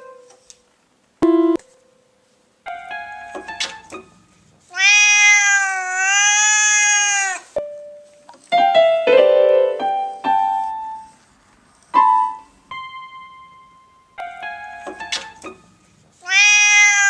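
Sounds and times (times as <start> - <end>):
electronic keyboard notes: 1.2 - 2.0, 2.6 - 4.3, 7.6 - 11.1, 12.0 - 15.8.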